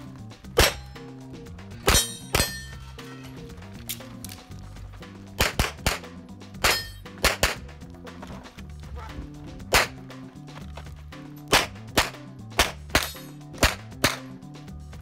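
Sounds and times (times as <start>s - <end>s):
pistol shots: 5.4s - 7.6s, 9.7s - 10.0s, 11.5s - 14.4s.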